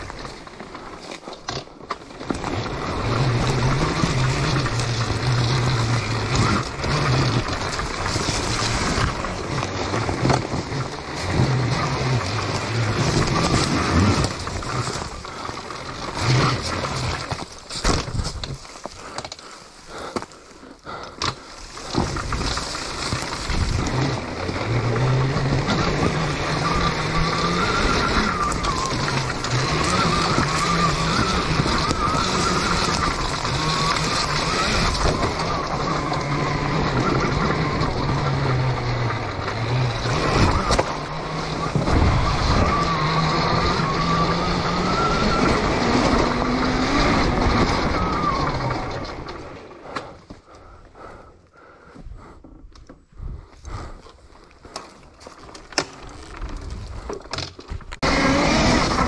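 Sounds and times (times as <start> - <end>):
tyres on leafy trail: 0.0 - 59.0
electric motor whine: 22.1 - 49.2, 58.0 - 59.0.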